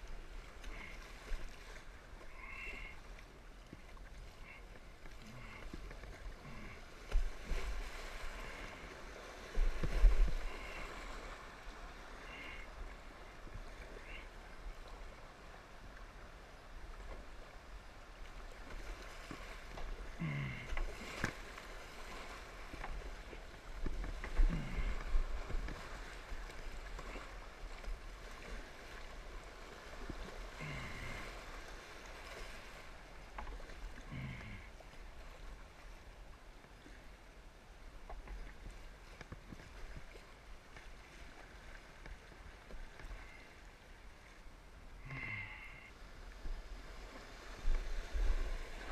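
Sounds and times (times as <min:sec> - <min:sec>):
creek water rushing: 0:00.0 - 0:36.3
paddle splashes: 0:00.0 - 0:48.9.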